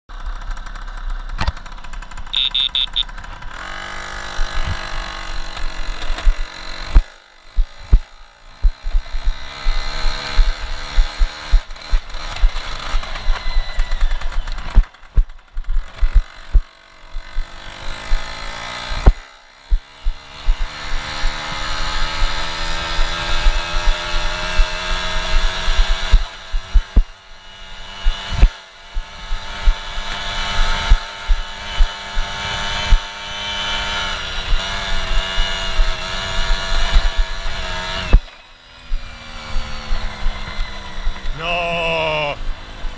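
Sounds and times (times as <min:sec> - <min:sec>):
moped engine revving: 0:00.1 - 0:42.9
knocks and thumps over rough ground: 0:04.4 - 0:18.3, 0:28.0 - 0:41.4.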